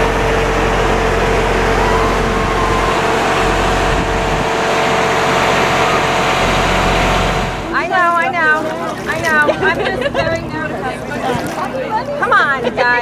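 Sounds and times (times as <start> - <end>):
engine humming steadily: 0.0 - 13.0.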